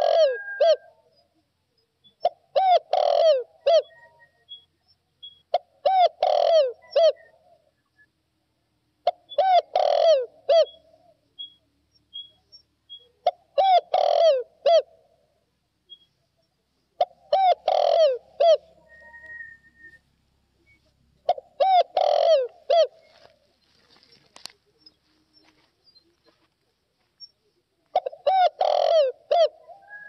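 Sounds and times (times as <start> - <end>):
dove cooing: 0.0 - 1.4, 2.1 - 4.6, 5.5 - 7.7, 9.0 - 11.4, 13.0 - 15.3, 16.9 - 20.0, 20.6 - 26.5, 27.2 - 30.0.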